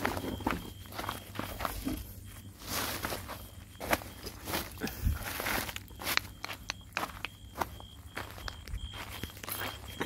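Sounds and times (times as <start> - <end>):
plastic sacks rustling: 0.0 - 5.9
footsteps on gravel: 0.0 - 10.0.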